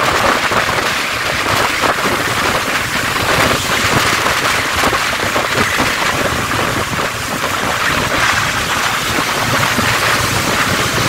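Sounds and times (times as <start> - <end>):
tyre and rain hiss: 0.0 - 11.0
wind on microphone: 0.0 - 11.0.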